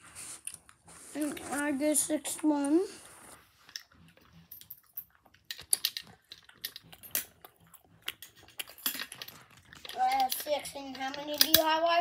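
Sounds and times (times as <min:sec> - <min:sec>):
plastic toy clicks and taps: 0:09.8 - 0:11.7.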